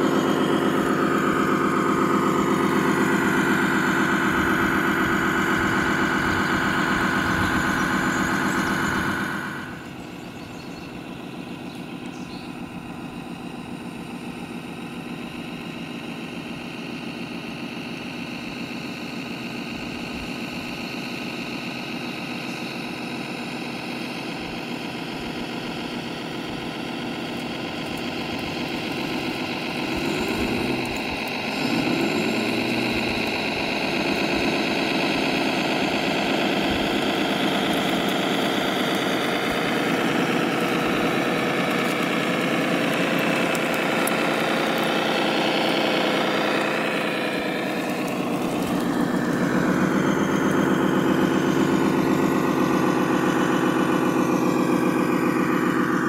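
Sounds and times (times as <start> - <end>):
rc truck motor drone and whine: 0.0 - 56.0.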